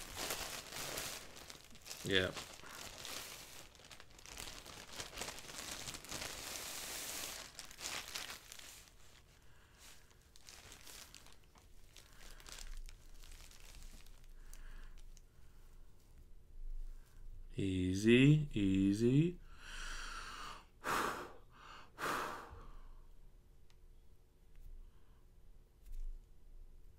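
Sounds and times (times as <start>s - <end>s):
plastic bag crinkling: 0.0s - 15.2s.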